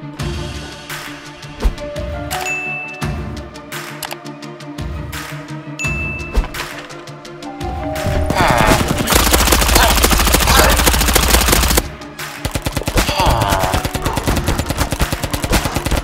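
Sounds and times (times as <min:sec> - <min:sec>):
music: 0:00.0 - 0:16.0
gel blaster firing full auto: 0:08.9 - 0:11.9.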